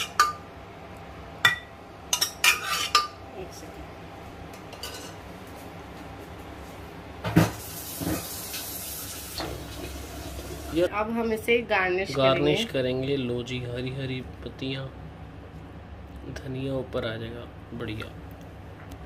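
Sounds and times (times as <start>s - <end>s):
metal utensil clinking dishes: 4.7s - 5.2s.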